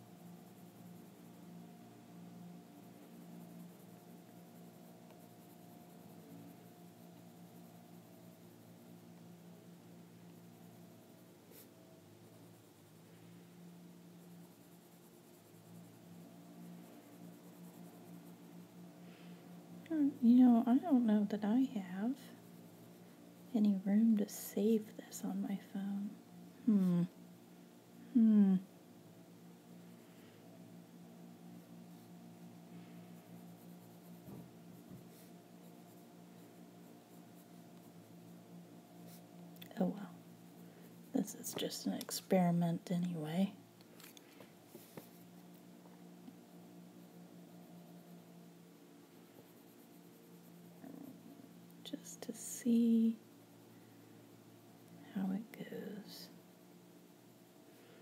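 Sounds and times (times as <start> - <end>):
low steady hum: 0.0 - 58.0
coloured pencil scratching on paper: 0.1 - 9.5, 10.1 - 18.8, 19.8 - 25.7, 31.8 - 44.2, 46.8 - 48.4, 49.1 - 53.6.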